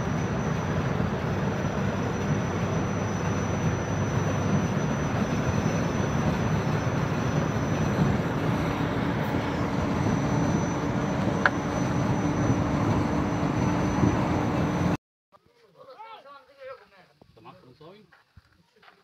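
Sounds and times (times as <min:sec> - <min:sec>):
road and engine noise in vehicle: 0:00.0 - 0:15.0.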